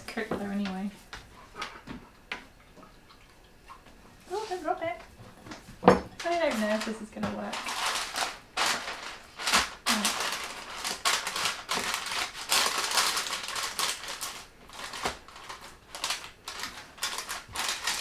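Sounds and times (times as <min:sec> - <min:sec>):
baking paper crinkling: 0:04.3 - 0:18.0.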